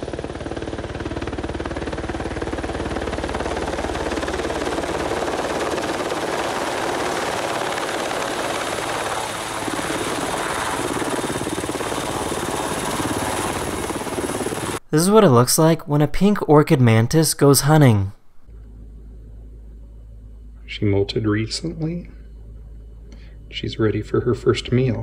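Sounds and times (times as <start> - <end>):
helicopter rotor blades chopping: 0.0 - 14.8.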